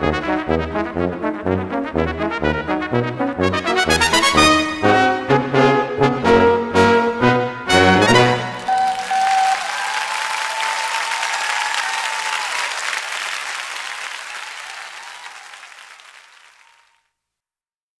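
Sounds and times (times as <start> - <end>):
brass sextet final note: 7.7 - 9.1
audience applauding: 8.0 - 17.0.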